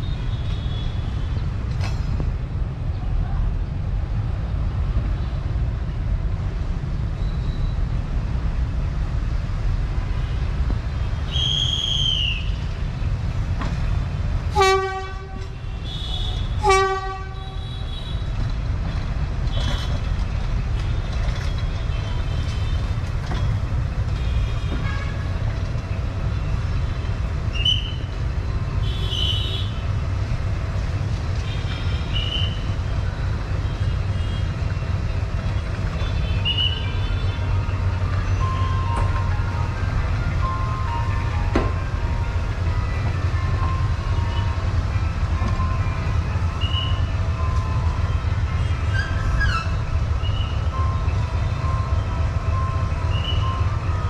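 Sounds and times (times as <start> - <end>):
locomotive engine rumbling: 0.0 - 54.0
locomotive horn toots: 14.5 - 18.4, 24.2 - 25.4.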